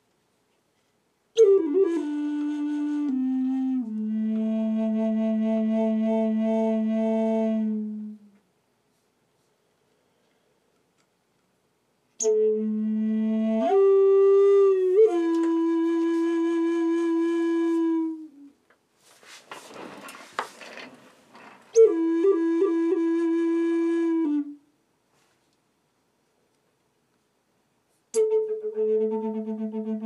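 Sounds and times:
flute playing held notes: 0:01.4 - 0:08.4, 0:12.2 - 0:18.6, 0:21.7 - 0:24.7, 0:28.2 - 0:30.0.

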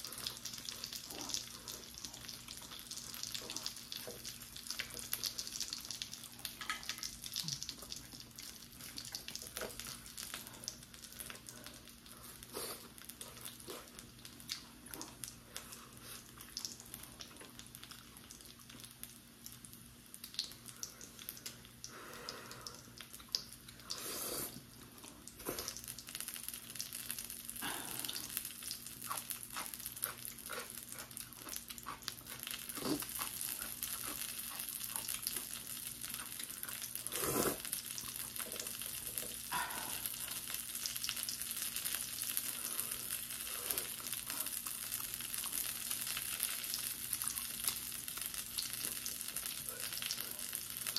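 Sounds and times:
noodles slurped and chewed: 0:28.9 - 0:39.5.

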